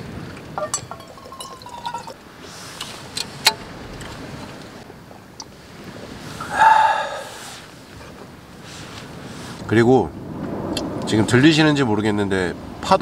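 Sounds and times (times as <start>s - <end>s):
wine pouring into cup: 0.3s - 2.2s.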